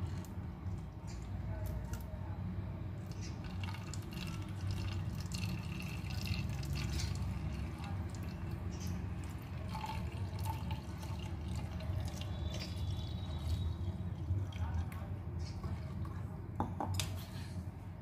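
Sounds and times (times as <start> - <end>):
liquid trickling and dripping: 3.0 - 16.3.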